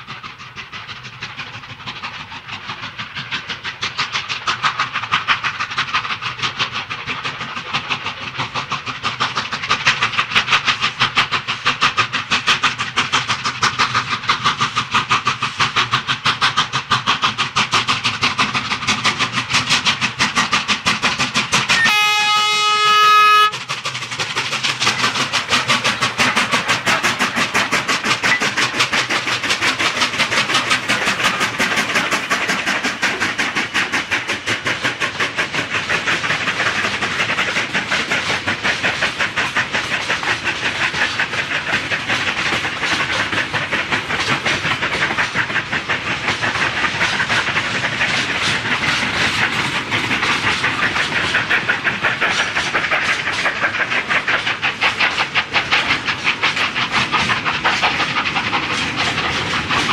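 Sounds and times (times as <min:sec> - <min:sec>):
steam locomotive exhaust beating: 0:00.0 - 0:59.9
steam whistle blast: 0:21.8 - 0:23.6.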